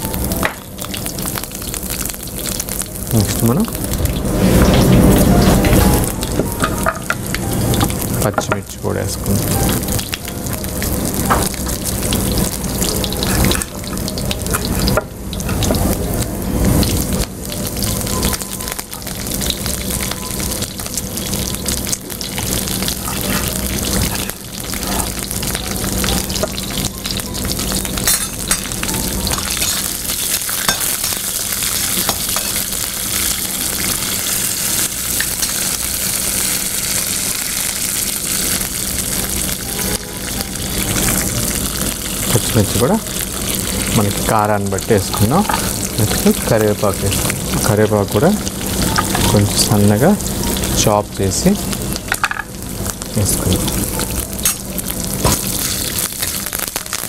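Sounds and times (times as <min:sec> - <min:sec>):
spices sizzling in hot oil: 0:00.0 - 0:57.0.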